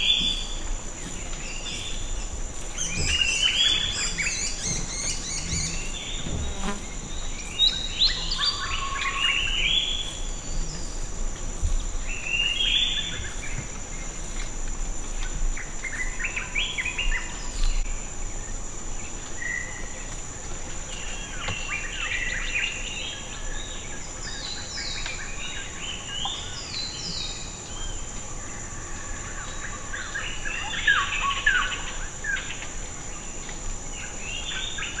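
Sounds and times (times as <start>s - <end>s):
birds chirping and calling: 0.0s - 11.0s
insects droning: 0.0s - 35.0s.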